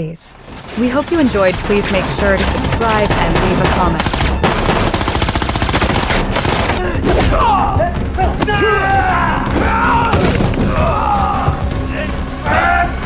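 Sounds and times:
voices: 0.0s - 4.0s
action film music: 0.0s - 13.0s
pistol shots: 0.5s - 6.8s.

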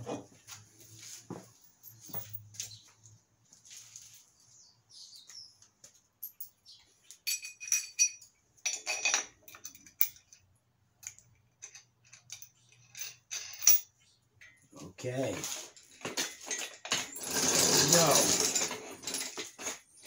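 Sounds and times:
light metallic clicks and clinks: 1.6s - 2.8s, 6.2s - 14.7s
ringing metal chinks: 7.2s - 10.3s.

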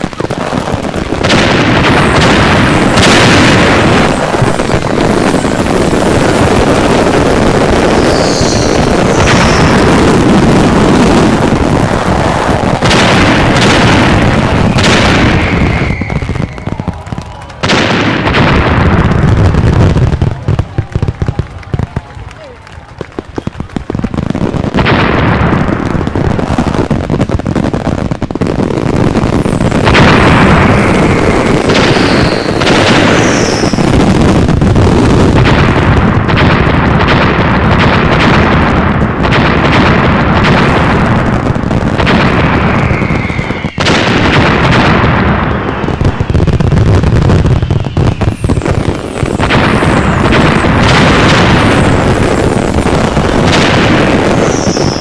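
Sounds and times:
fireworks bursting and crackling: 0.0s - 55.0s
falling firework whistles: 1.8s - 18.0s, 29.1s - 35.1s, 42.1s - 44.7s, 45.6s - 55.0s.

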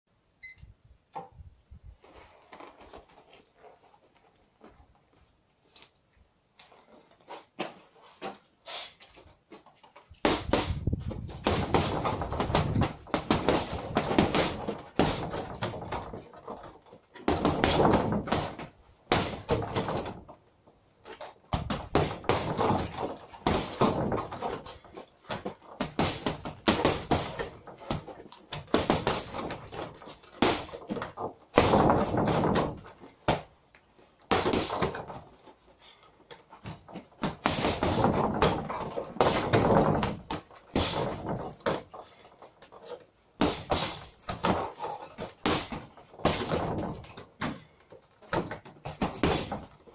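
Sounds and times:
gloves punching heavy bag: 10.2s - 20.3s, 21.5s - 33.5s, 34.3s - 35.3s, 36.6s - 42.1s, 43.4s - 47.6s, 48.3s - 49.9s.

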